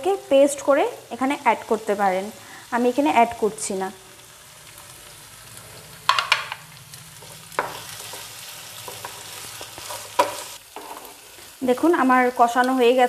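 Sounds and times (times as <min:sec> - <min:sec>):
low sizzle: 0:00.0 - 0:13.0
spatula scraping frying pan: 0:07.2 - 0:11.6.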